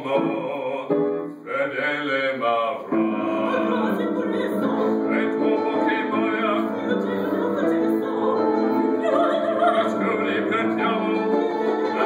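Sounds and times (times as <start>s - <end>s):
opera trio singing: 0.0s - 12.0s.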